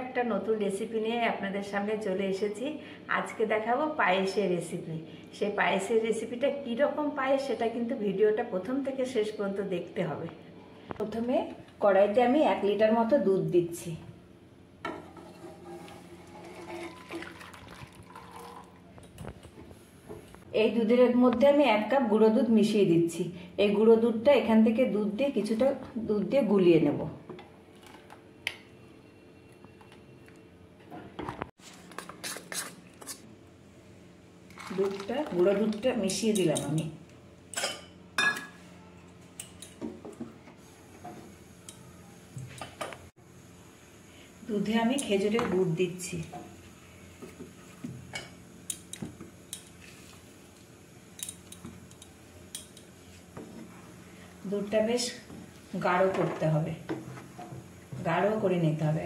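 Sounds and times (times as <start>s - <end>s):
milk pouring into pan: 16.2s - 18.8s.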